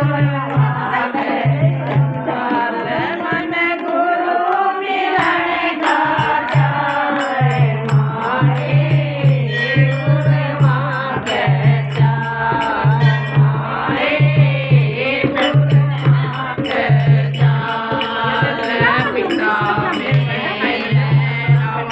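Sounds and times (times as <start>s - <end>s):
women singing devotional song: 0.0s - 21.9s
sharp ticks keeping time: 3.3s - 21.9s
hand drum beating: 5.1s - 21.9s.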